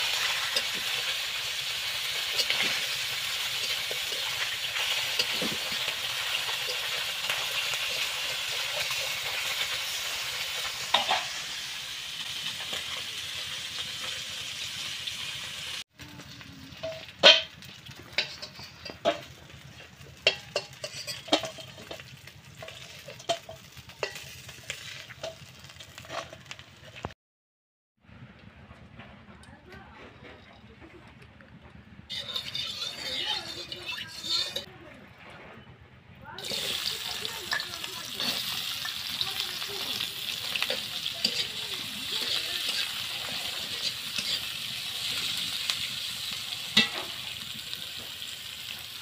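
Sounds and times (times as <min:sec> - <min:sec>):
spatula clinking on wok and bowl: 0:00.0 - 0:09.7, 0:16.8 - 0:19.6, 0:20.2 - 0:24.6, 0:32.1 - 0:34.7, 0:36.4 - 0:45.9, 0:46.6 - 0:47.7
metal spatula scraping wok: 0:00.0 - 0:15.8, 0:16.7 - 0:27.1, 0:32.1 - 0:34.8, 0:36.3 - 0:49.0
fish sizzling in hot oil: 0:00.0 - 0:27.1, 0:32.1 - 0:34.7, 0:36.4 - 0:49.0.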